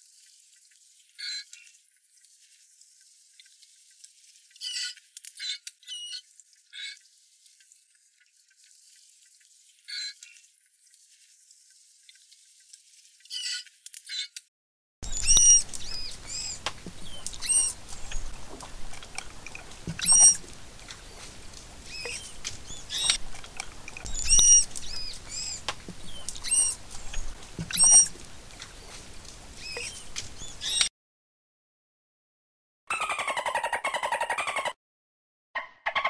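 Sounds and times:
manatee squeaks and chirps: 0:01.2 - 0:01.5, 0:04.6 - 0:06.2, 0:09.9 - 0:10.4, 0:13.3 - 0:14.4, 0:15.0 - 0:18.4, 0:19.0 - 0:20.4, 0:21.9 - 0:23.2, 0:23.9 - 0:28.2, 0:29.6 - 0:30.9, 0:32.9 - 0:34.8, 0:35.6 - 0:36.0
low background hiss: 0:15.1 - 0:30.7.

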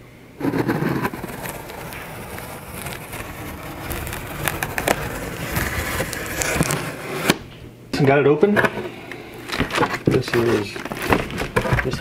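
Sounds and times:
knife scraping through tape: 0:00.4 - 0:07.4.

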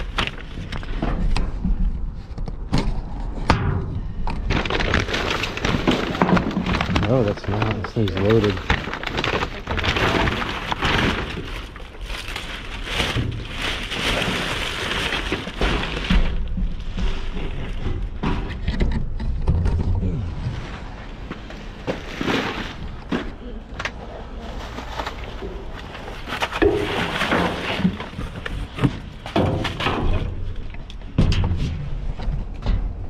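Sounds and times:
rustling of rummaged items: 0:00.0 - 0:03.4, 0:04.0 - 0:33.0
low rumble: 0:00.0 - 0:33.0
knocks and thuds: 0:15.5 - 0:20.4, 0:26.5 - 0:33.0.

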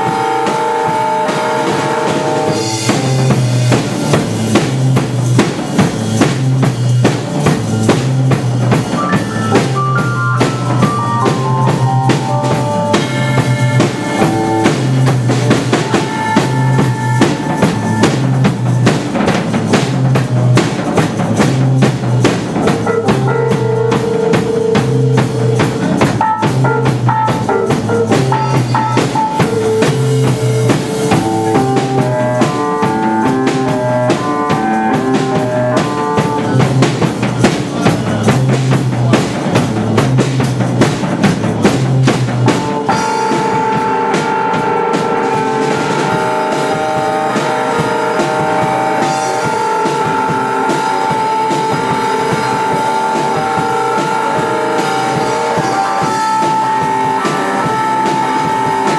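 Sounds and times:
keyboard melody: 0:00.0 - 0:38.0, 0:41.7 - 0:58.9
bass line: 0:00.0 - 0:58.9
drum kit beat: 0:00.0 - 0:58.9
saxophone: 0:09.0 - 0:18.9, 0:22.6 - 0:37.1, 0:42.5 - 0:58.9.

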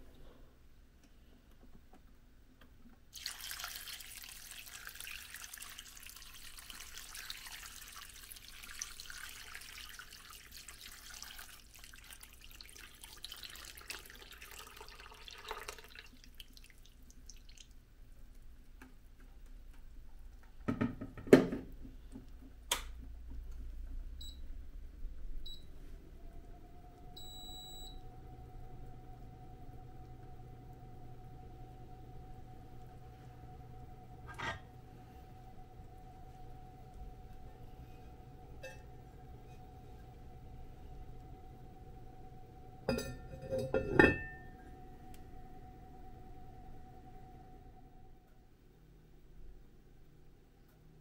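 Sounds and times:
water pouring into pot: 0:03.2 - 0:17.8
short electronic beeps: 0:27.2 - 0:28.0.

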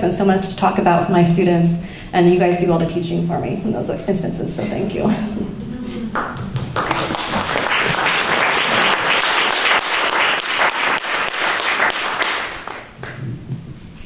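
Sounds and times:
audience applauding: 0:06.1 - 0:13.3.

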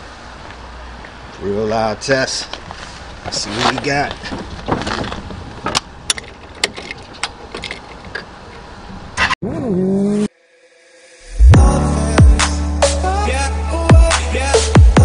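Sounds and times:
motorcycle engine revving: 0:09.4 - 0:10.4
electronic music with deep bass: 0:11.2 - 0:15.0.

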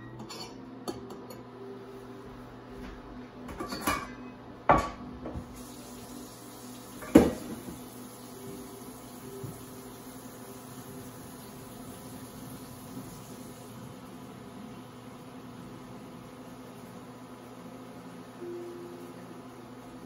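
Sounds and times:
faint steady hiss: 0:05.5 - 0:20.0.

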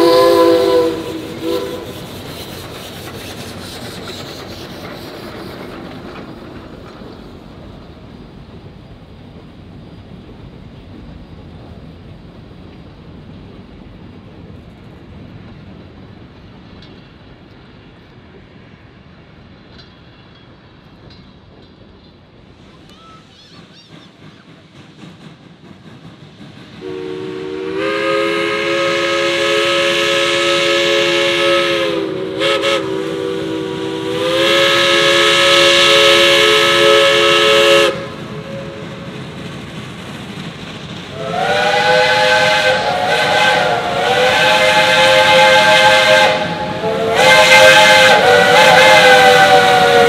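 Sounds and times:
low chime steam whistle: 0:00.0 - 0:02.2, 0:26.8 - 0:39.1, 0:41.2 - 0:50.0
high chime steam whistle: 0:00.0 - 0:04.5, 0:26.8 - 0:38.8, 0:41.2 - 0:50.0.

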